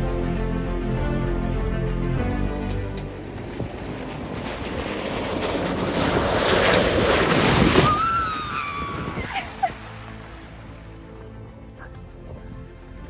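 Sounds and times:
truck splashing through mud: 2.8s - 11.2s.

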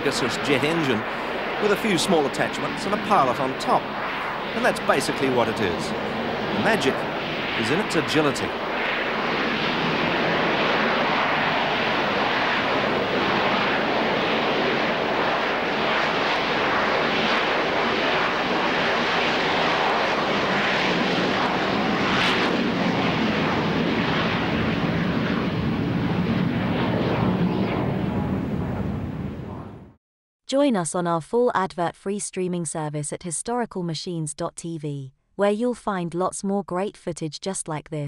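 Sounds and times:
jet engine roar: 0.0s - 30.0s.

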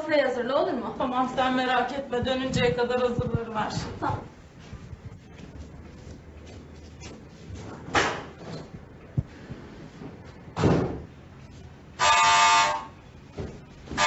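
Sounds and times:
door thudding: 10.6s - 11.1s.

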